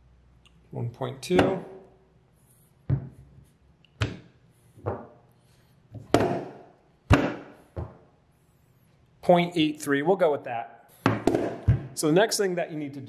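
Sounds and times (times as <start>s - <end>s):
clay thudding on wooden table: 1.4s - 1.8s, 2.9s - 3.4s, 4.0s - 5.2s, 5.9s - 8.1s, 11.0s - 12.0s.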